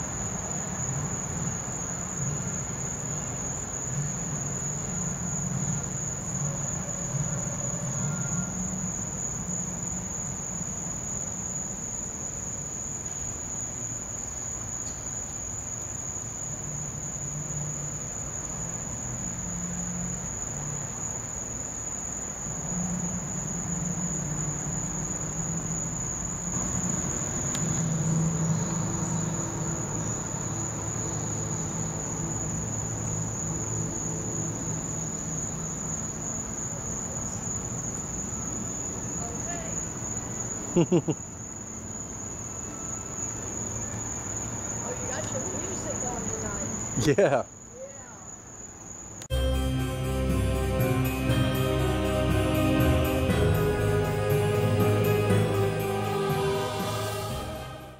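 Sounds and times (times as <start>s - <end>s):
crickets trilling: 0.0s - 57.9s.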